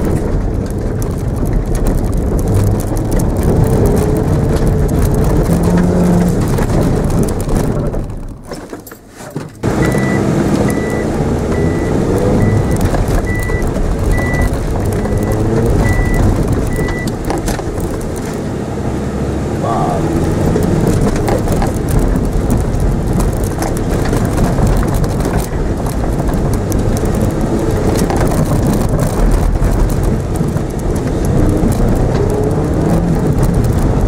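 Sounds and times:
car engine revving: 0.0 - 8.4, 9.6 - 34.0
tyres rumbling over grass: 0.0 - 18.6
high beep: 9.8 - 13.6, 14.2 - 17.1.

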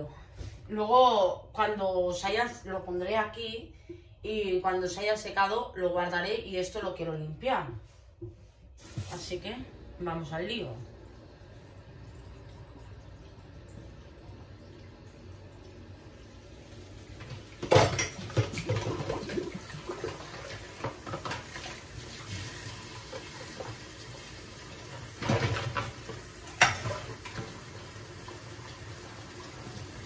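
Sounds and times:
running water hiss: 8.8 - 9.5.

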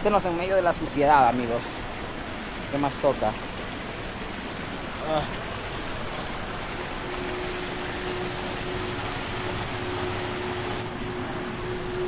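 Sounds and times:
water rushing over rocks: 0.0 - 12.0
faint steady tone: 4.8 - 12.0.

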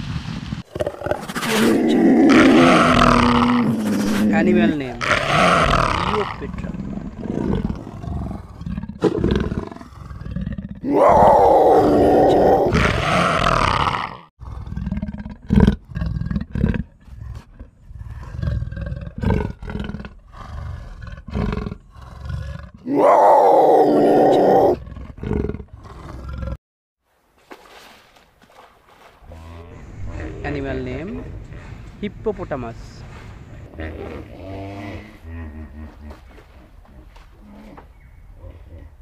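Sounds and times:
leopard grunts and growls: 0.7 - 26.6, 29.2 - 39.0
leopard roaring: 0.7 - 26.6, 29.3 - 39.0.

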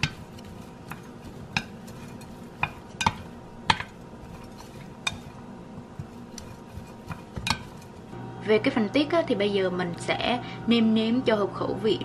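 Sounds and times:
chopsticks tapping a tray: 0.0 - 8.0.

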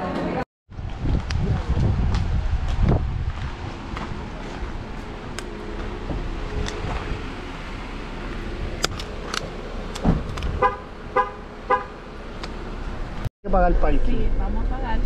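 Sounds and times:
car door clicks: 8.8 - 10.8
car door thump: 10.0 - 10.7.

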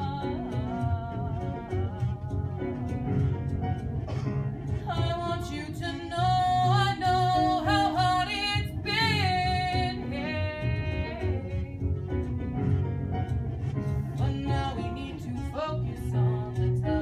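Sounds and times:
woman singing: 0.0 - 3.4, 4.8 - 12.0, 14.1 - 17.0
instrumental accompaniment: 0.0 - 17.0.

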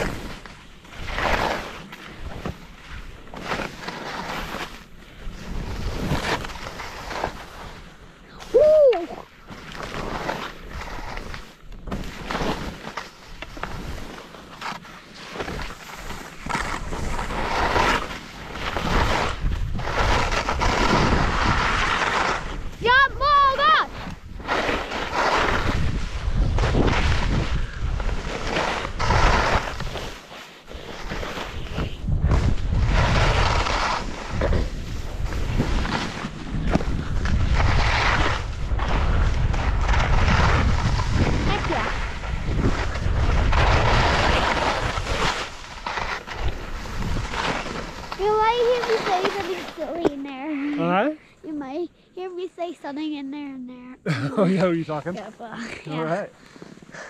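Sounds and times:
skis scraping through snow: 0.0 - 51.7, 54.1 - 57.0
wind buffeting microphone: 31.6 - 45.0.

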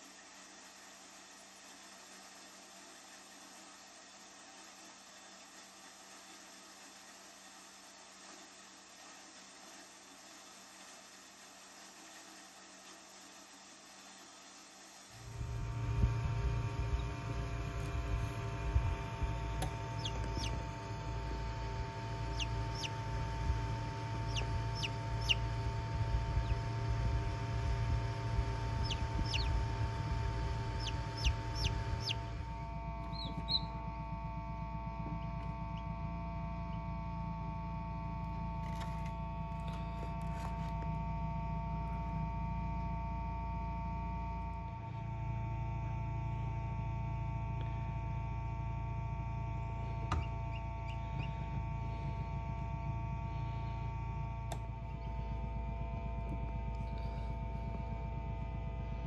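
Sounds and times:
incubator humming: 11.8 - 59.0
chicks peeping: 19.6 - 20.7, 21.7 - 27.8, 28.5 - 33.8, 50.1 - 51.5.

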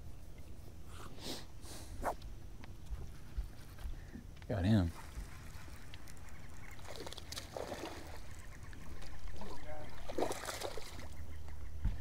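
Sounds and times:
low rumble of wind and boat: 2.2 - 12.0
water splashing beside boat: 4.9 - 11.2.

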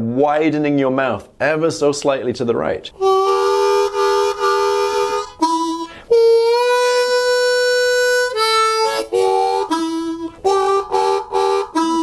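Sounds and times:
blues harmonica playing: 3.0 - 12.0.

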